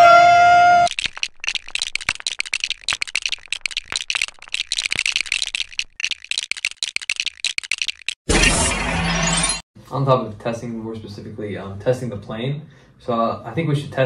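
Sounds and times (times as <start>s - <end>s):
rapid clicks and rattles: 0.9s - 8.2s.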